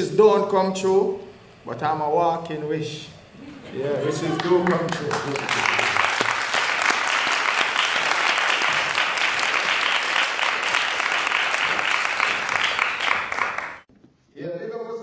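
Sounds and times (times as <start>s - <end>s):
audience applauding: 4.1s - 13.9s.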